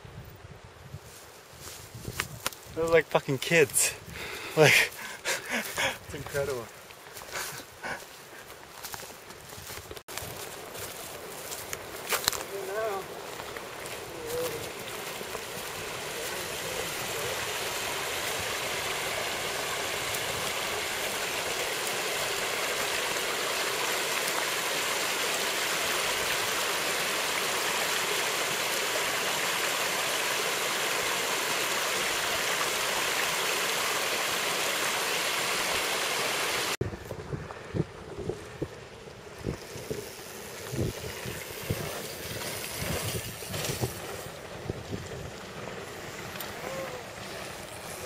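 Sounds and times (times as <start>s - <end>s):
creek splashing over rocks: 10.1s - 36.8s, 38.8s - 48.0s.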